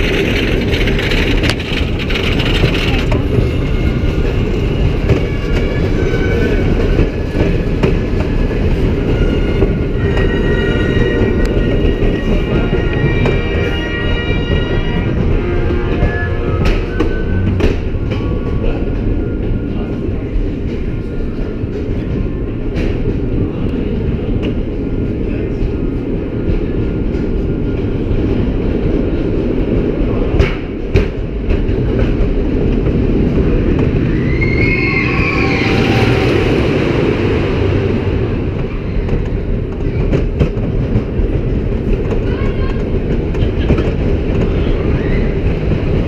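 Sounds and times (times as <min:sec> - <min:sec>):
roller coaster rumbling on wooden track: 0:00.0 - 0:46.0
wavering squeal: 0:34.1 - 0:36.7.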